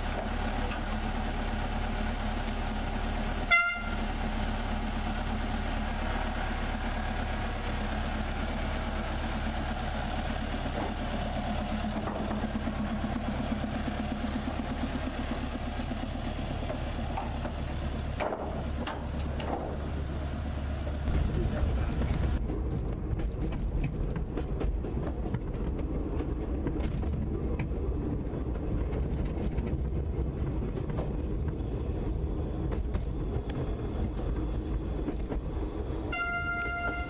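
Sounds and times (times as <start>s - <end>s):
diesel locomotive engine running: 0.0s - 37.0s
locomotive horn toot: 3.4s - 4.1s, 36.0s - 37.0s.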